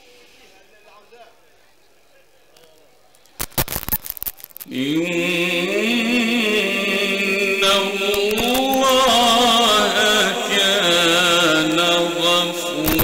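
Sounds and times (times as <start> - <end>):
man chanting melodically: 4.7 - 13.0.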